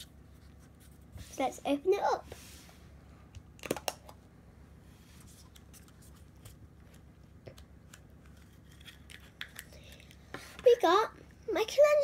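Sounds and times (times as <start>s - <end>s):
plastic capsule snapping open: 3.6s - 4.2s.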